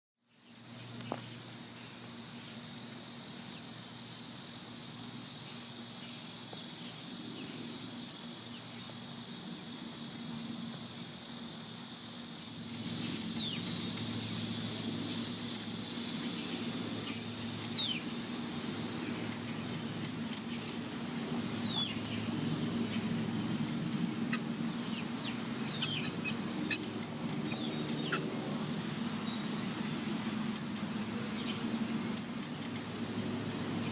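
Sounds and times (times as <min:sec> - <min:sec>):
low steady hum: 0:00.2 - 0:33.9
high-pitched insect drone: 0:00.3 - 0:32.9
chicks peeping: 0:24.3 - 0:28.2.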